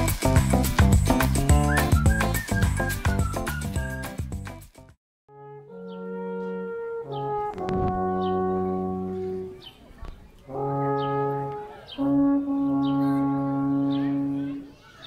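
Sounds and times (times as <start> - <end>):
alphorns playing long notes: 5.3 - 9.6, 10.5 - 14.7.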